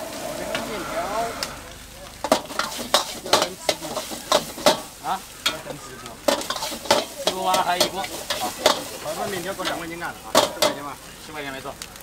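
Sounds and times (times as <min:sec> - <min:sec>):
food sizzling: 0:00.0 - 0:12.0
metal ladle clanking on wok: 0:02.2 - 0:10.8.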